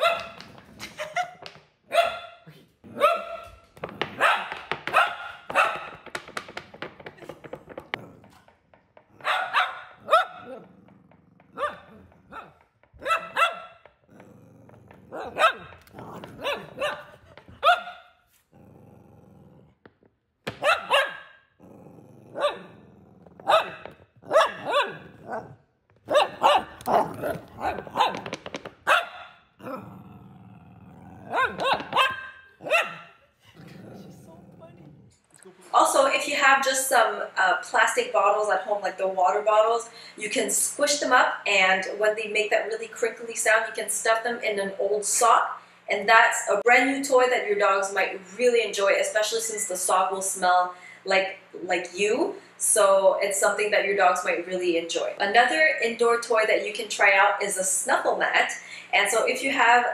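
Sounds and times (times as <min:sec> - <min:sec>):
dog barking: 0:00.0 - 0:00.4, 0:01.9 - 0:06.0, 0:09.1 - 0:10.9, 0:11.5 - 0:14.4, 0:15.0 - 0:18.1, 0:20.5 - 0:21.3, 0:22.3 - 0:22.8, 0:23.4 - 0:28.3, 0:28.9 - 0:29.8, 0:31.1 - 0:33.2
dog growling: 0:07.2 - 0:17.6, 0:18.4 - 0:19.9, 0:21.6 - 0:28.4, 0:29.6 - 0:35.3.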